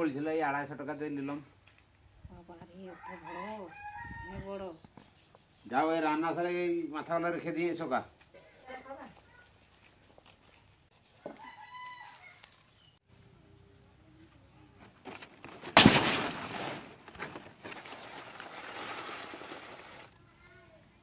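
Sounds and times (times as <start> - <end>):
rooster crowing: 2.9 - 4.5, 11.3 - 12.7
leaves rustling: 8.4 - 13.0, 15.0 - 20.2
palm fronds crackling: 11.4 - 13.0, 14.9 - 20.2.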